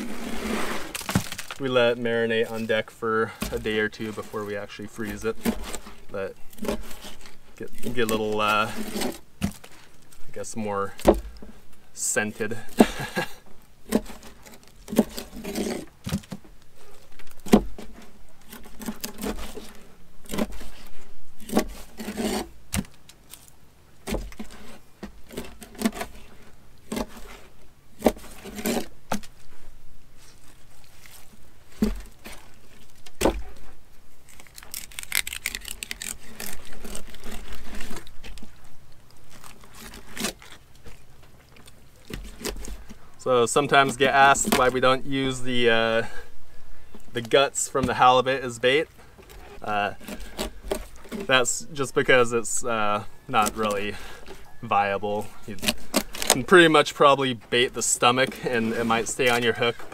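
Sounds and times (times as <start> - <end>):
knife scraping and slicing: 3.3 - 9.8, 13.9 - 16.2, 16.8 - 23.4, 24.1 - 29.2, 34.3 - 38.5, 49.3 - 51.5, 55.2 - 56.6.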